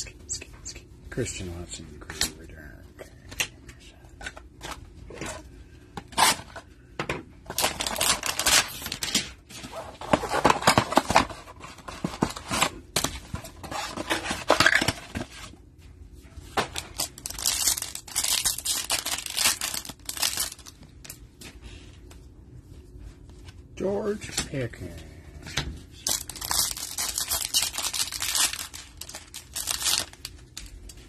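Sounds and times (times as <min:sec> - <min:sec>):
rustling of card and wrapper: 0:07.4 - 0:15.6, 0:16.5 - 0:21.6, 0:25.9 - 0:31.0.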